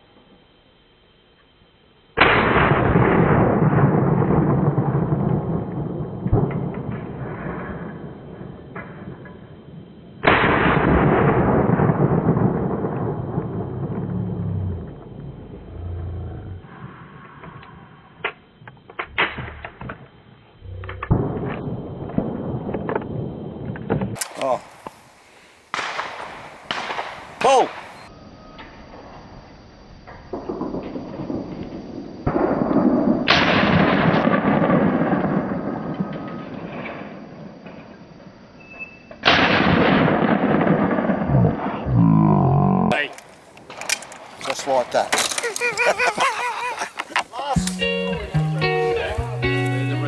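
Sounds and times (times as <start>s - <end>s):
shotgun shots with echo: 25.8s - 28.0s.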